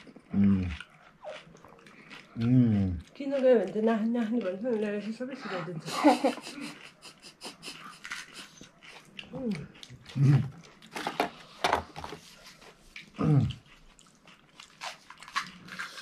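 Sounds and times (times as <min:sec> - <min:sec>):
crisp shells cracking and crunching: 0:14.1 - 0:16.0.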